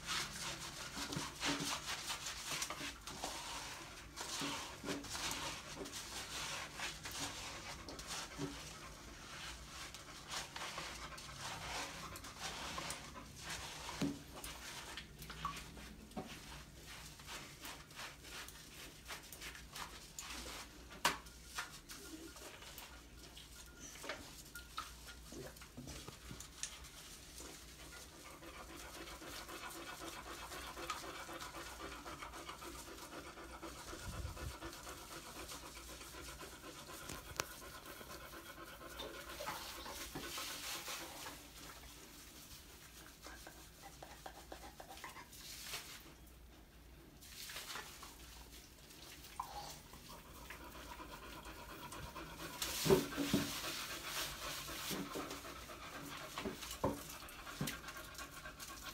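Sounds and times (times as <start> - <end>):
rubbing of wet fur: 0.0 - 46.5, 47.1 - 58.9
dog panting: 0.3 - 14.9, 25.0 - 45.7, 49.3 - 58.9.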